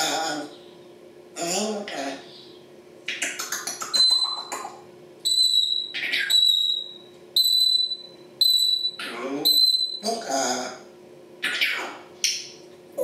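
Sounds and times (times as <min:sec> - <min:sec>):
parrot mimicking beeps: 0:03.8 - 0:04.7, 0:05.3 - 0:10.1.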